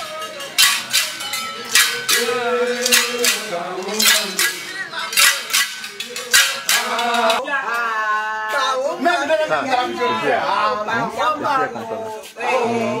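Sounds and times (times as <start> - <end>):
sharp percussive strikes: 0.0 - 7.4
men singing together: 0.0 - 13.0.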